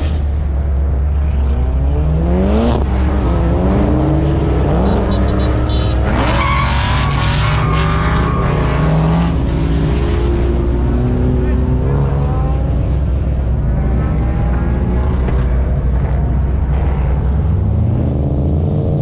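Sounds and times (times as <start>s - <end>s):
truck engine revving: 0.0s - 19.0s
tyres squealing: 5.9s - 9.4s.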